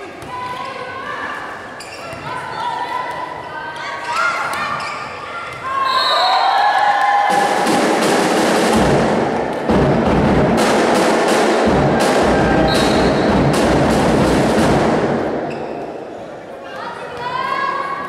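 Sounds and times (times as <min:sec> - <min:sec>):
drums and clappers beating: 0:07.0 - 0:15.3.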